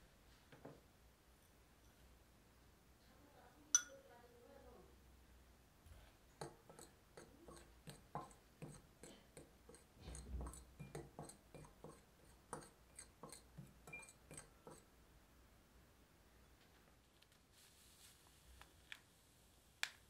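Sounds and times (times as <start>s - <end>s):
fork clinking against glass bowl: 3.8s - 4.0s, 12.6s - 14.8s
soft scraping through powder: 16.7s - 19.5s.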